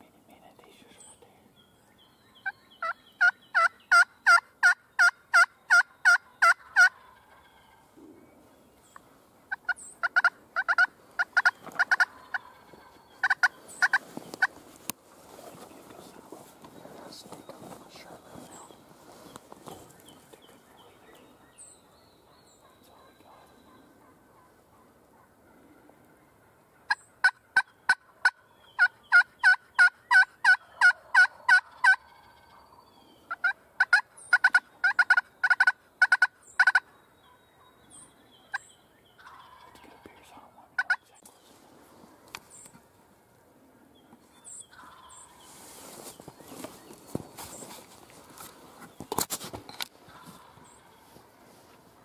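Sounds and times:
turkey yelping: 0:02.8 - 0:07.9, 0:09.5 - 0:14.5, 0:22.6 - 0:25.4, 0:26.3 - 0:37.4, 0:39.2 - 0:39.8, 0:44.7 - 0:45.4.

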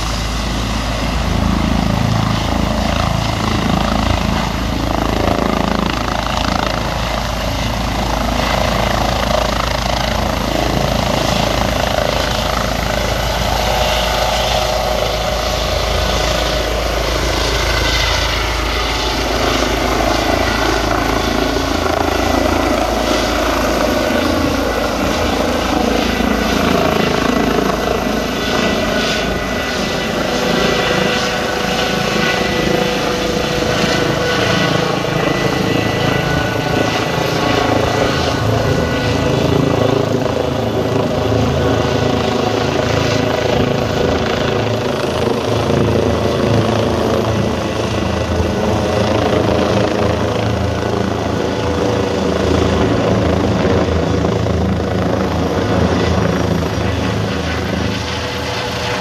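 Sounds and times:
helicopter climbing: 0:00.0 - 0:59.0
high turbine whine: 0:00.0 - 0:59.0.

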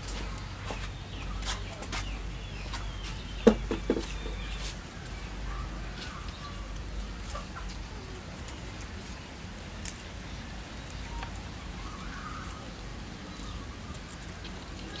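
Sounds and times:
faint high chirps: 0:10.9 - 0:12.7.

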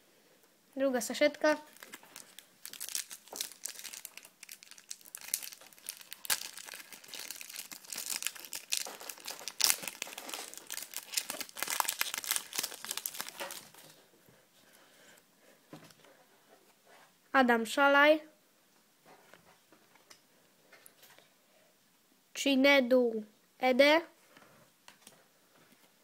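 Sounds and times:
foil wrapper crinkling and tearing: 0:01.6 - 0:14.0.

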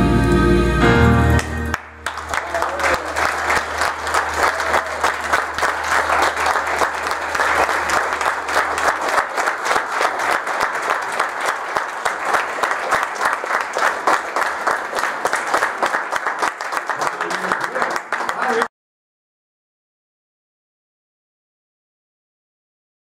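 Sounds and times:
crowd applauding: 0:01.4 - 0:18.7.

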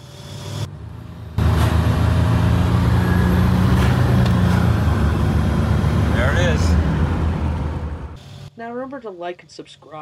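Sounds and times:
car engine running steadily: 0:00.6 - 0:08.2.

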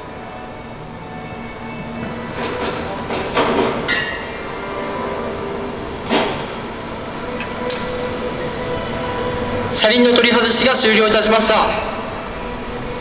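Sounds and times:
machine hum: 0:00.1 - 0:10.6
sharp metallic clanks: 0:03.9 - 0:04.6, 0:07.0 - 0:08.5.

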